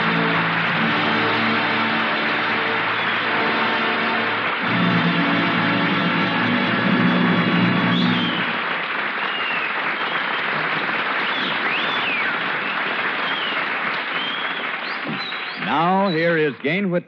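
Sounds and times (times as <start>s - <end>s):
held music chord: 0.0s - 8.5s
audience applauding: 0.0s - 17.0s.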